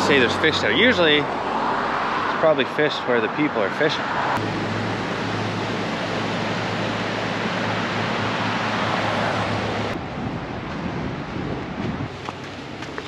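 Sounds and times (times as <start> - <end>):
wind on microphone: 4.3 - 13.0.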